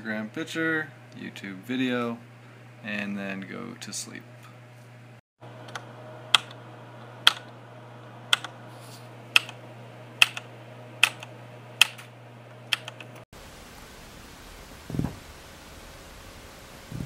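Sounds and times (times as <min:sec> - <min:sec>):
low electrical hum: 0:00.0 - 0:17.0
sharp clicks: 0:05.6 - 0:06.6, 0:07.2 - 0:07.6, 0:08.3 - 0:08.5, 0:09.4 - 0:09.6, 0:10.2 - 0:12.1, 0:12.7 - 0:13.2.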